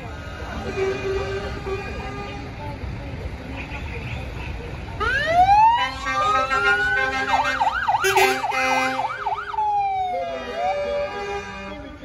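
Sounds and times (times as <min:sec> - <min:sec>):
fire engine siren: 0:05.0 - 0:11.9.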